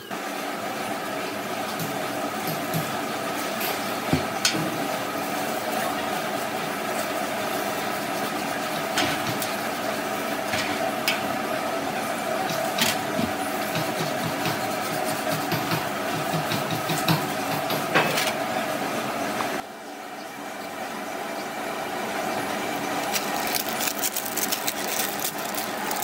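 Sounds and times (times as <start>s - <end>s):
machine humming: 20.9s - 26.0s.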